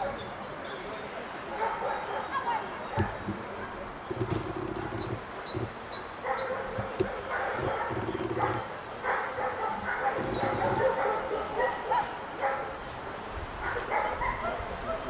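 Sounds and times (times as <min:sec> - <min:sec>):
dog barking and yipping: 0:06.2 - 0:12.7.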